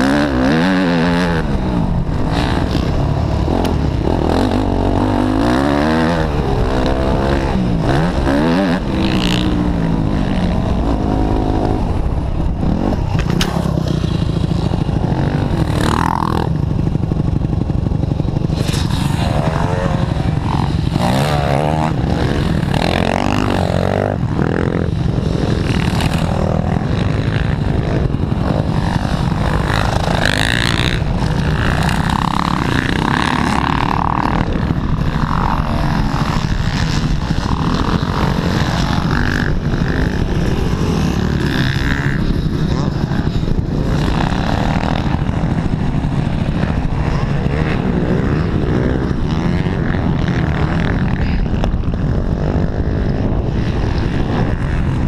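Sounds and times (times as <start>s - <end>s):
dirt bike engines passing: 0.0s - 55.0s.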